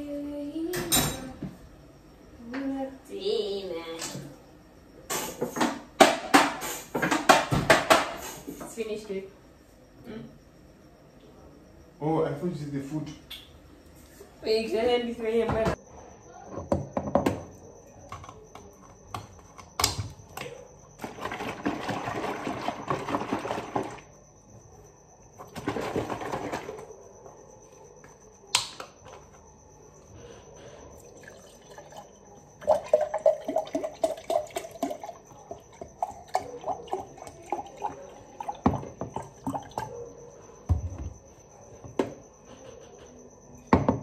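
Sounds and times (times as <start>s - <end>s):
juice pouring into a glass: 30.9s - 39.9s.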